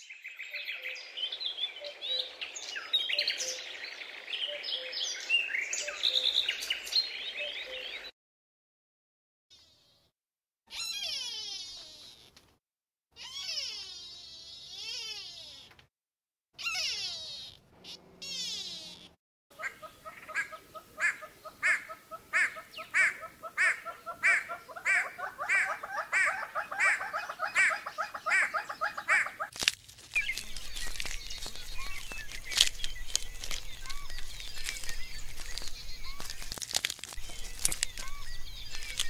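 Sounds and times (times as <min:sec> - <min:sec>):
hornbills calling: 0:19.6 - 0:29.5
porcupines chewing crunchily: 0:29.4 - 0:39.0.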